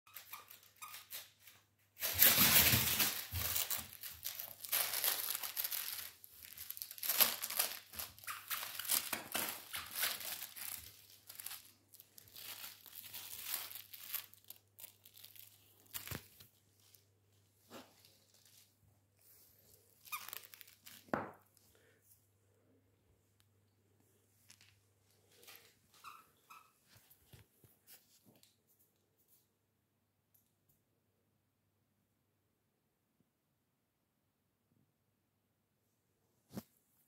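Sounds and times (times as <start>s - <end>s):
plush toy crinkling and rustling: 0.1s - 21.7s, 24.3s - 28.6s.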